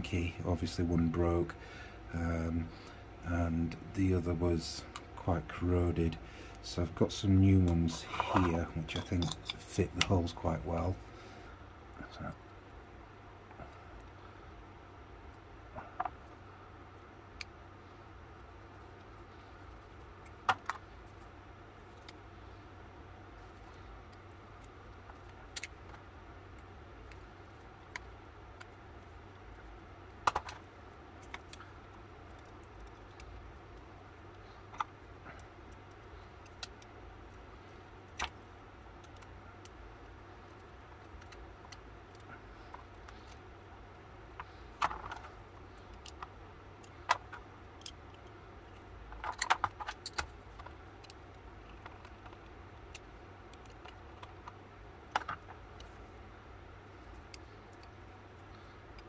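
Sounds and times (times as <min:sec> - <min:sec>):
faint steady hum: 0:00.0 - 0:59.0
metal parts and tools clicking: 0:07.9 - 0:09.7.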